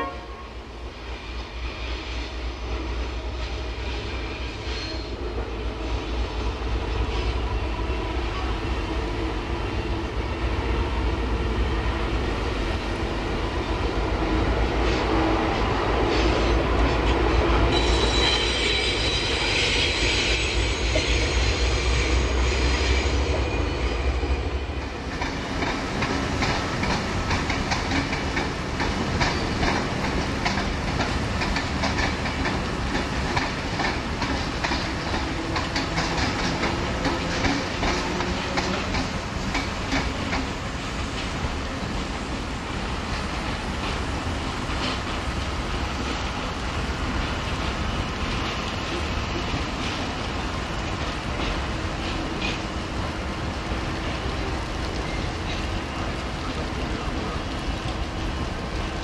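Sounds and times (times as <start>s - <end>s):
diesel train engine rumble: 0.0s - 59.0s
train wheels clicking and clattering: 13.8s - 59.0s.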